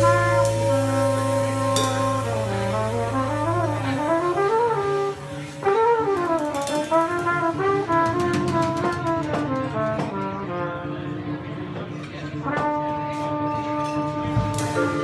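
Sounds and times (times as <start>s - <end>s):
cymbal strokes: 0.0s - 3.5s
plucked double bass: 0.0s - 10.7s
drums: 0.0s - 15.0s
flugelhorn melody: 0.0s - 15.0s.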